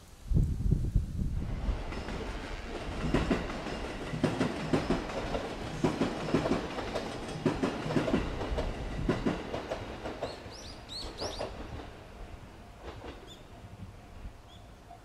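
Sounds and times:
train wheels clicking over rail joints: 1.6s - 13.6s
bird chirping: 10.2s - 11.5s, 14.4s - 15.0s.

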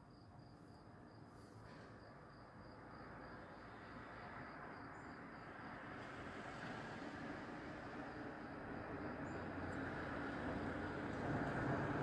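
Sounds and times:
cricket chirping: 0.0s - 5.9s, 7.8s - 11.0s.

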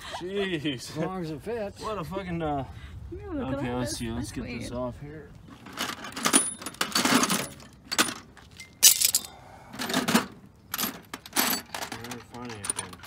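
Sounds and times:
metal tools clattering in toolbox: 5.6s - 13.0s.

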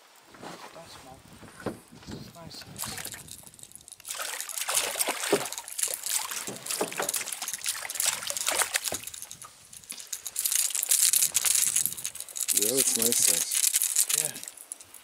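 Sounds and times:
fish splashing in water: 2.8s - 12.3s.

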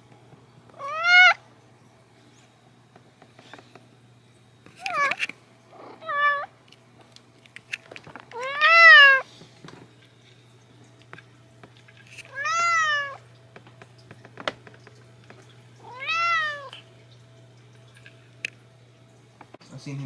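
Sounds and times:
cat meowing: 0.7s - 1.4s, 5.8s - 6.5s, 8.3s - 9.3s, 12.3s - 13.2s, 15.8s - 16.8s.

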